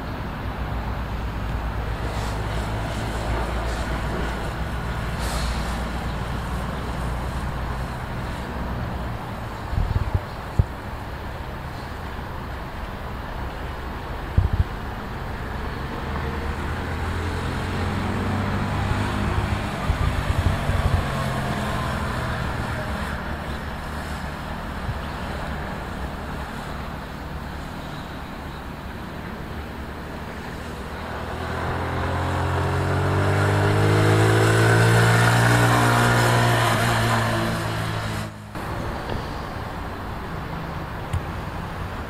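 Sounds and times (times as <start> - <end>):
wind gusts on microphone: 0.1 - 42.0
motorcycle engines running: 14.4 - 42.0
motorcycle accelerating and revving: 15.8 - 25.6, 30.1 - 39.3.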